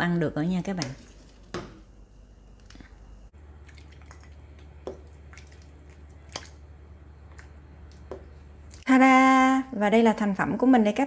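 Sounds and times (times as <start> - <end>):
low steady hum: 0.0 - 11.0
broth dripping and splashing: 3.5 - 8.8.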